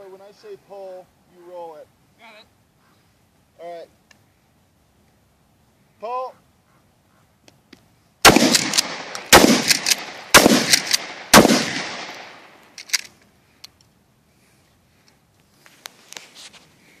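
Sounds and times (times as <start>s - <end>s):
shotgun shots echoing: 8.2s - 12.6s
faint clicks: 12.6s - 14.0s.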